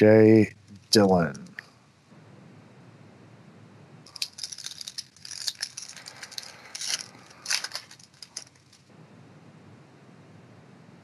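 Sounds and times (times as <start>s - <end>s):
foil wrapper tearing and crinkling: 4.1s - 8.8s.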